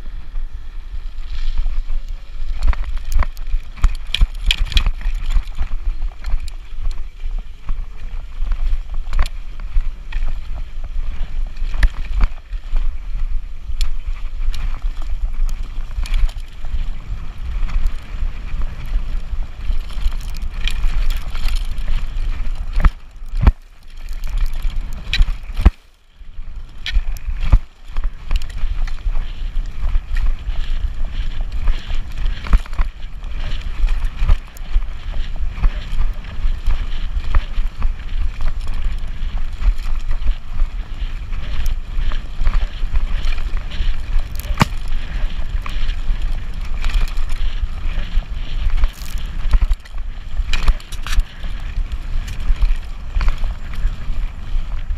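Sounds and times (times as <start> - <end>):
wind buffeting microphone: 0.0 - 54.9
bike rattling and knocking: 2.5 - 7.1, 13.8 - 25.8, 35.4 - 48.1.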